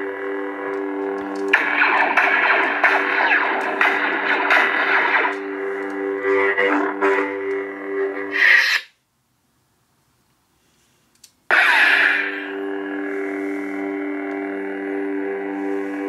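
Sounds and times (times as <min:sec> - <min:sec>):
lightsaber electronic hum: 0:00.0 - 0:09.0, 0:11.4 - 0:16.0
lightsaber ignition: 0:01.5 - 0:06.8, 0:11.5 - 0:13.2.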